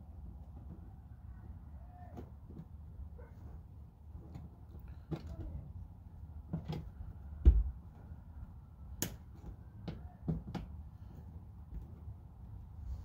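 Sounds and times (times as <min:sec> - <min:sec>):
dull thump: 0:07.4 - 0:07.8.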